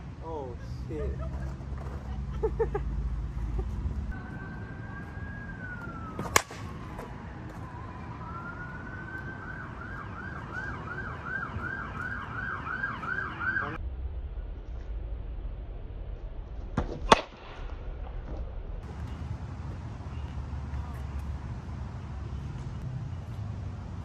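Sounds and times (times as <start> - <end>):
emergency vehicle siren: 4.1 - 13.8
sharp crack: 6.1 - 7.0, 16.8 - 18.2.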